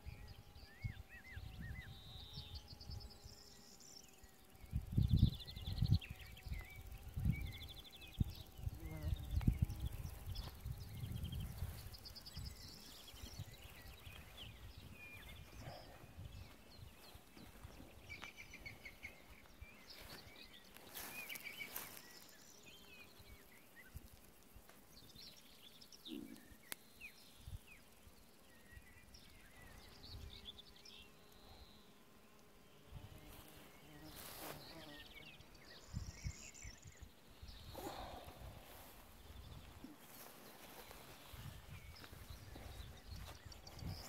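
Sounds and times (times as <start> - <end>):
wind rumble on microphone: 0.0 - 3.4, 4.6 - 20.1, 35.4 - 44.0
small birds chirping: 0.0 - 44.0.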